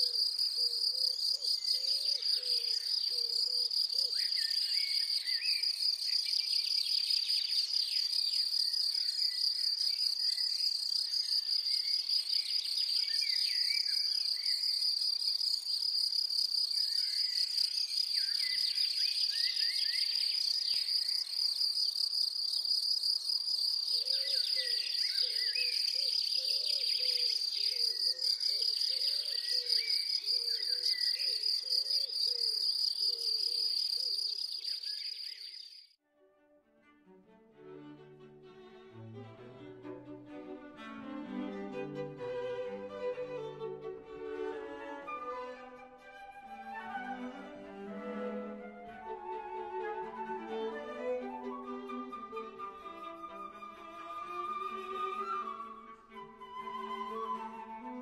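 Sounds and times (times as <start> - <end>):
insects buzzing: 0.0 - 35.9
songbirds calling: 0.0 - 35.9.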